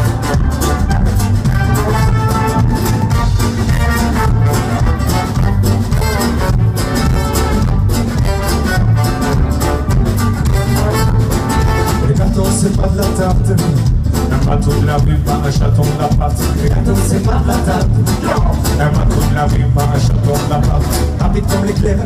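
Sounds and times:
live band playing latin music: 0.0 - 22.0.

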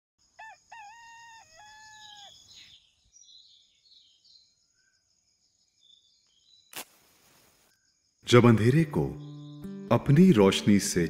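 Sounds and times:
rooster crowing: 0.4 - 2.4
faint small-bird chirps: 0.4 - 6.9, 7.6 - 8.3.

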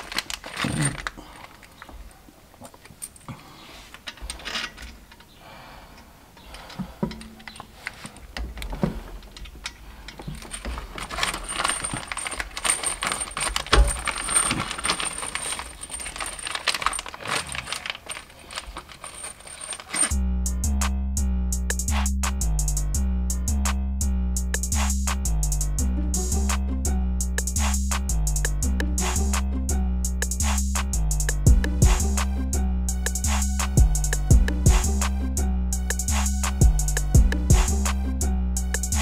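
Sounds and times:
hand tools clicking and clinking: 0.0 - 20.2.

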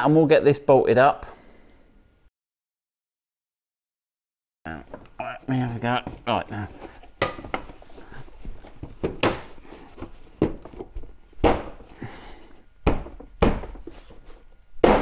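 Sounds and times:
sharp knocks and clunks: 12.8 - 14.0.

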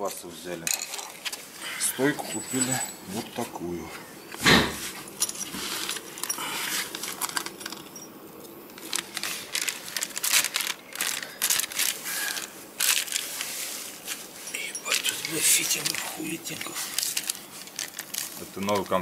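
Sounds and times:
small metal parts handled: 0.0 - 1.4, 2.0 - 3.4, 5.1 - 19.0
plastic bag crinkling: 5.4 - 7.9, 8.5 - 19.0.

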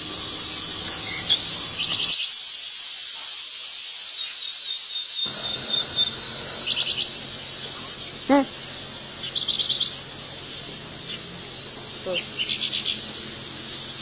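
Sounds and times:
insect chorus: 0.0 - 14.0
bird trills: 5.2 - 14.0
short pitched call: 8.0 - 8.8.

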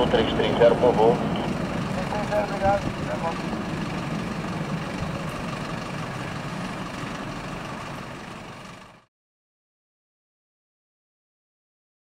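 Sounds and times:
jet engine rumble: 0.0 - 9.1.

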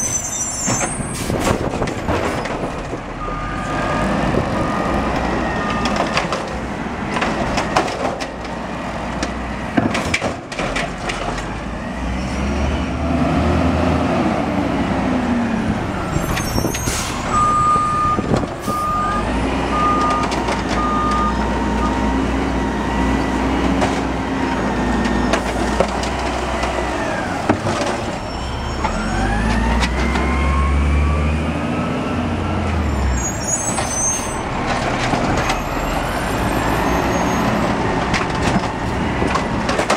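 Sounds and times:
diesel engine revving: 1.1 - 9.8, 10.9 - 39.9
cart and arm clunking: 37.4 - 39.9.

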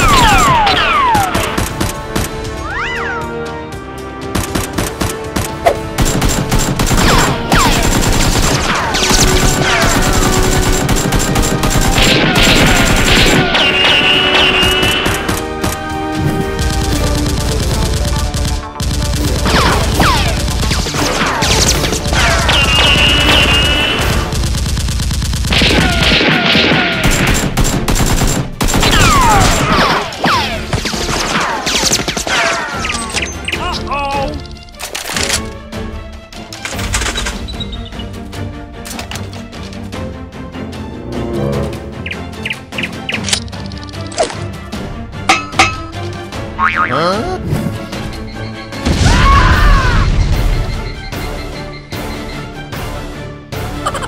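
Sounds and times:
background music: 0.0 - 54.0
rapid automatic gunfire effects: 6.0 - 15.5, 16.4 - 29.9.

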